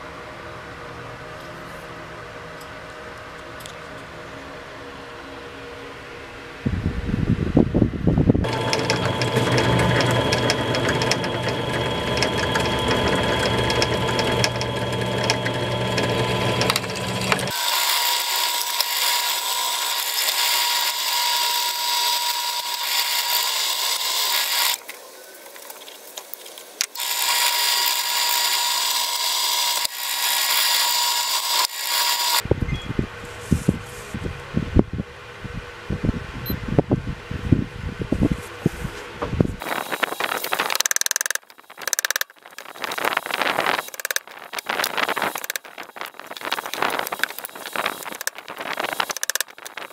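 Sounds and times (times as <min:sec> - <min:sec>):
drill press boring into wood: 0:08.4 - 0:24.8, 0:26.8 - 0:32.4, 0:39.6 - 0:49.9.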